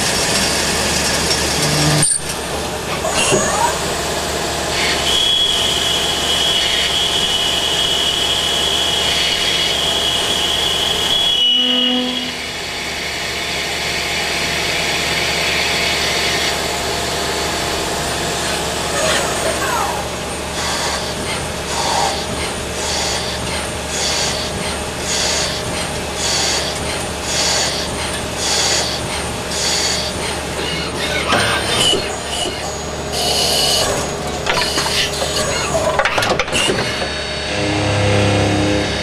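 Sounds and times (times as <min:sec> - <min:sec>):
machine humming: 0:37.1 - 0:39.0.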